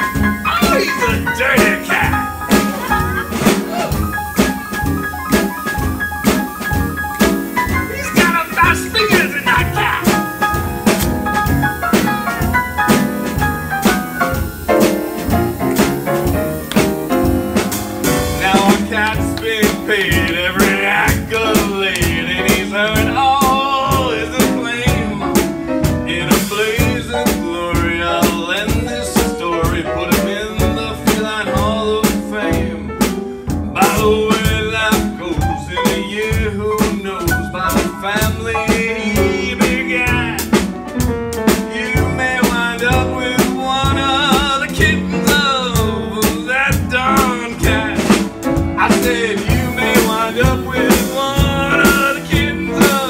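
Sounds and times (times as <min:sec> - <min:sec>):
drums keeping steady beat: 0:00.0 - 0:53.0
jazz trio playing: 0:00.0 - 0:53.0.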